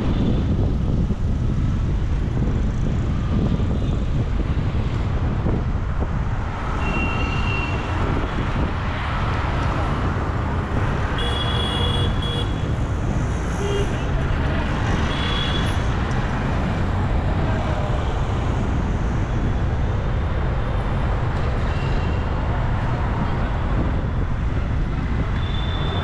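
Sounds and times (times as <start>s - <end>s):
city street traffic rumble: 0.0s - 26.0s.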